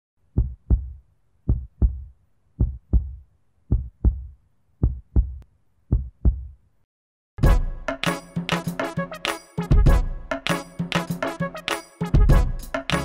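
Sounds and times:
heartbeat thumps: 0:00.4 - 0:06.6.

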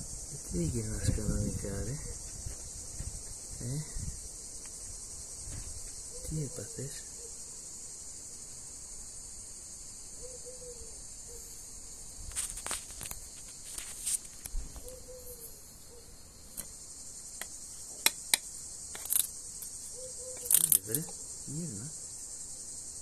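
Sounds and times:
cicadas buzzing: 0:00.0 - 0:23.0
sharp clicks and scrapes: 0:18.9 - 0:19.3, 0:20.4 - 0:21.2.

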